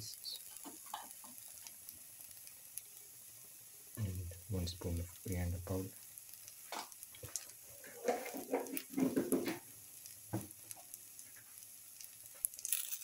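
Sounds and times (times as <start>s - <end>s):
food sizzling in oil: 0.0s - 13.0s
spatula scraping in frying pan: 7.3s - 9.6s.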